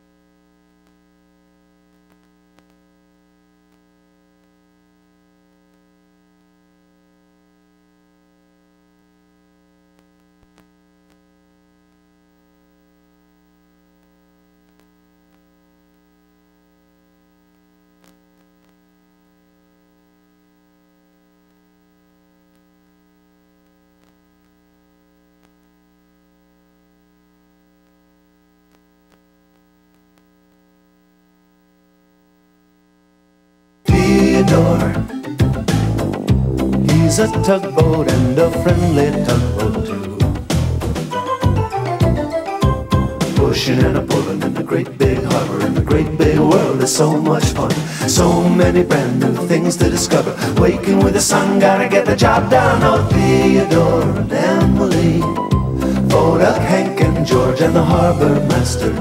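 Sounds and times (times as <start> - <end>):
faint electrical hum: 0.0 - 59.0.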